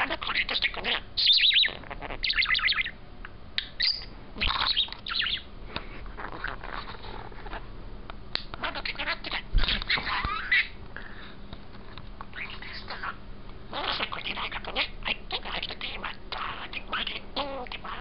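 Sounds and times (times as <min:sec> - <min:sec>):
budgerigar chattering and warbling: 0:00.0 - 0:03.0, 0:03.6 - 0:05.5, 0:08.4 - 0:10.8, 0:12.3 - 0:18.0.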